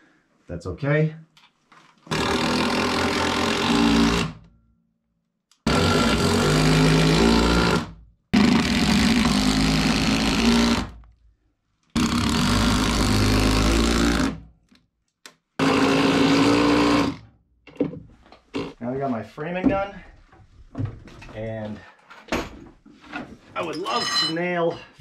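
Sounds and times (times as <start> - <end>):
impact driver driving screws: 2.1 - 4.4, 5.7 - 11.0.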